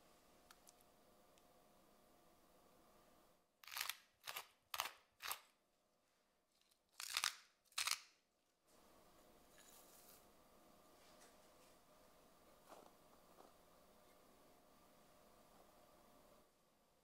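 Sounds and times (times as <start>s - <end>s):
pepper mill grinding: 3.6s - 5.5s, 6.6s - 8.1s.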